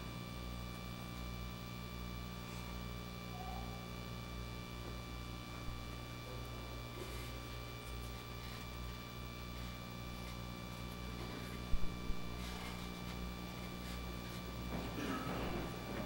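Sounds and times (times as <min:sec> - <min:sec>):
electrical hum: 0:00.0 - 0:16.0
faint rustling: 0:06.9 - 0:16.0.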